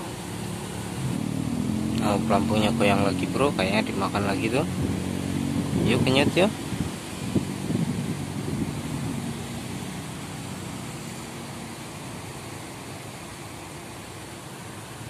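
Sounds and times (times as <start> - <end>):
distant city traffic hum: 0.0 - 15.0.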